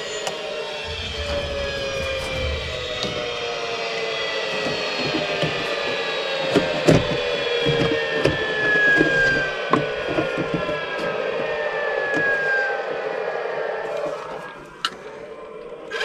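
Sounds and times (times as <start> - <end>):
steady falling drone: 0.7 - 4.6.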